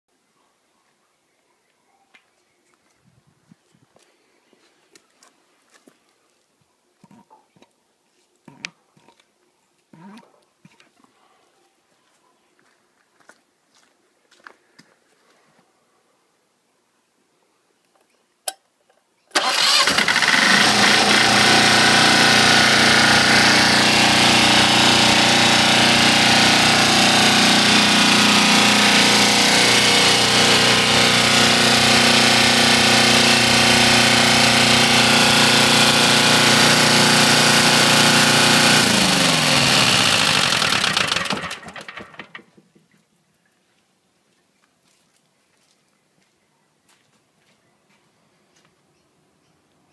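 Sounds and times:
diesel engine running: 19.4 - 42.2.

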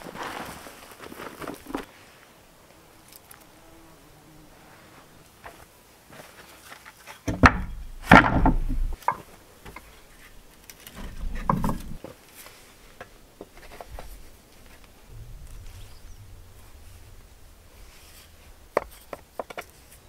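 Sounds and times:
stone slab knocking and scraping: 7.3 - 9.2, 11.0 - 12.0, 18.7 - 19.8
heavy stone clunks: 7.3 - 9.3, 10.9 - 12.0.

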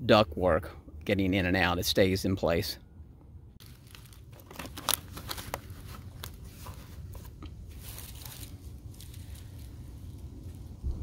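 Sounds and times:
aluminium foil duct crinkling: 3.6 - 10.8.

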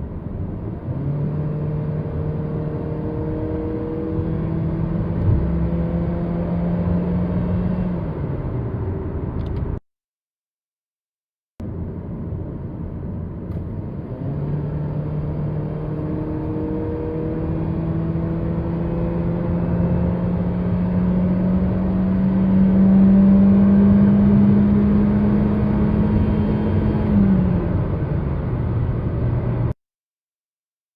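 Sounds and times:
car engine accelerating hard: 0.3 - 8.6, 13.5 - 29.7.

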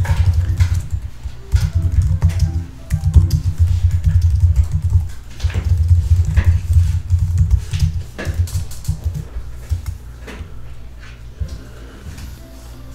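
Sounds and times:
typing on computer keyboard: 0.0 - 10.0.

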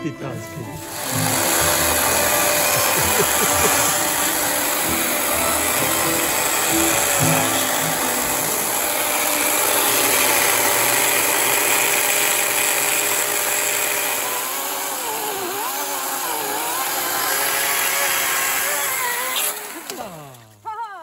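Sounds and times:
power tool whirring on wood: 0.0 - 20.7.

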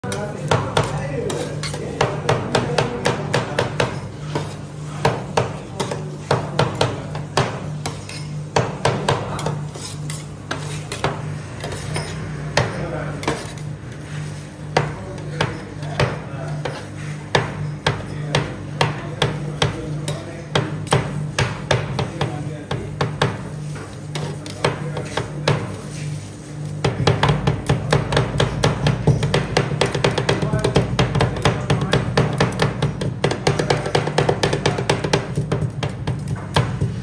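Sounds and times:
metal spatulas clacking and scraping: 0.1 - 2.1.

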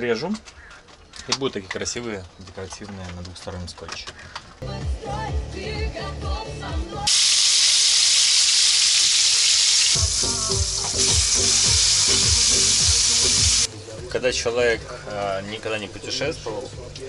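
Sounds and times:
background music: 4.6 - 7.1, 10.0 - 17.0
food sizzling in frying pan: 7.1 - 13.7.

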